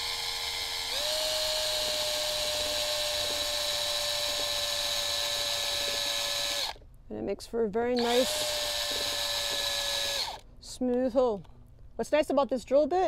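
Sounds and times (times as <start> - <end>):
cordless drill motor whining: 0.0 - 6.8, 8.0 - 10.4.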